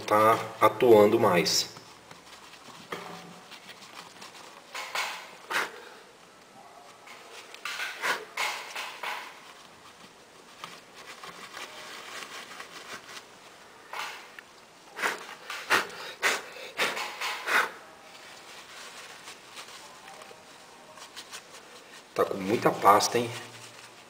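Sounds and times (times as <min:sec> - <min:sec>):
paper towel rustling and rubbing: 0:00.0 - 0:05.5, 0:06.1 - 0:15.9, 0:18.0 - 0:24.0
handling clicks and knocks: 0:07.1 - 0:09.5.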